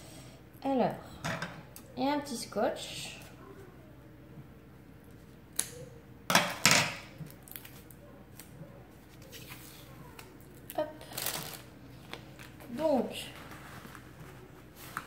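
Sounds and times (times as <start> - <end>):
plastic rustling: 7.2 - 15.0.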